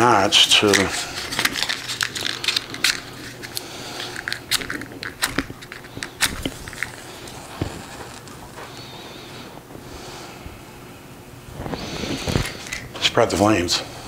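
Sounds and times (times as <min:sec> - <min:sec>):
matchbox clicks and scrapes: 0:00.6 - 0:07.4.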